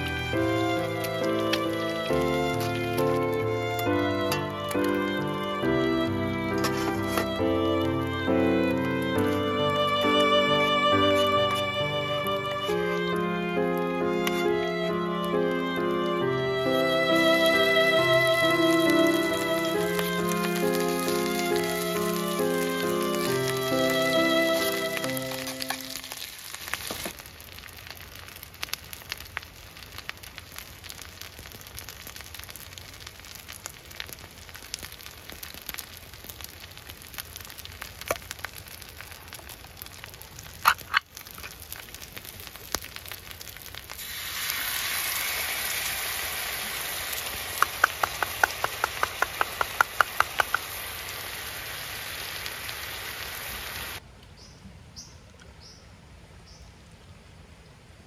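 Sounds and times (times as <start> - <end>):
food sizzling in a pan: 16.7 - 54.0.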